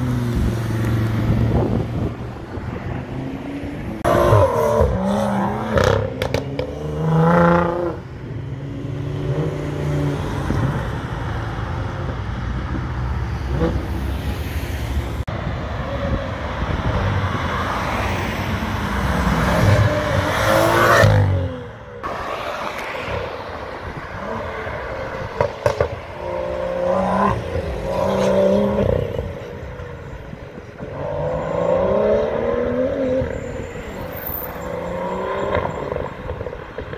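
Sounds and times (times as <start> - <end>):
sports cars accelerating past: 30.8 - 36.9.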